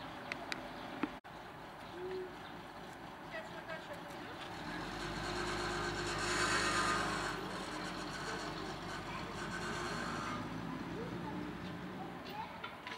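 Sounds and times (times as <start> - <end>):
car engine driving off slowly: 4.2 - 12.4.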